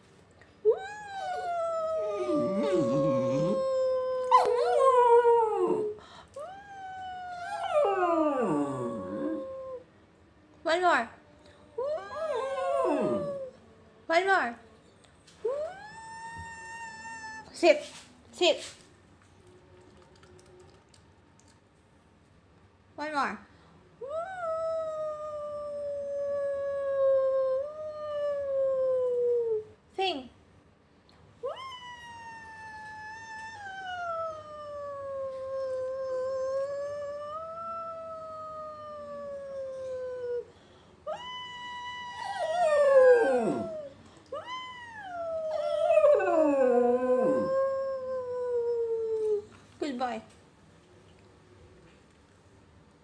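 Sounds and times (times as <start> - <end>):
person howling: 0.7 - 9.8, 11.8 - 13.5, 41.1 - 49.2
dog howling: 0.8 - 6.0, 6.7 - 9.8, 11.9 - 13.6, 41.1 - 49.0.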